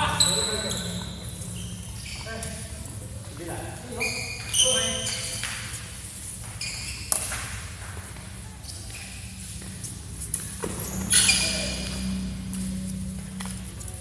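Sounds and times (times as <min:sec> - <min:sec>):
shoes squeaking on court: 0:00.0 - 0:14.0
racket striking shuttlecock: 0:07.1 - 0:07.7.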